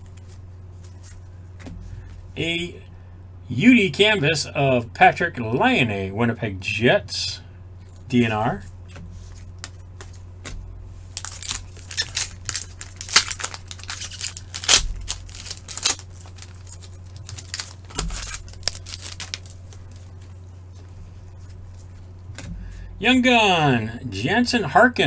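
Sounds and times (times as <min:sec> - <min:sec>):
steady low hum: 0:00.0 - 0:25.0
foil wrappers tearing and crinkling: 0:11.1 - 0:20.5.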